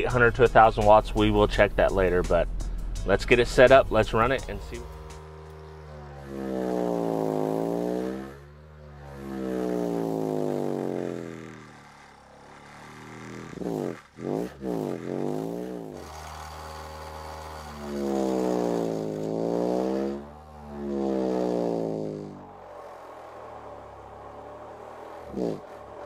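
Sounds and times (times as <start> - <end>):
subwoofer bass frequency sweep: 0.0 - 5.2.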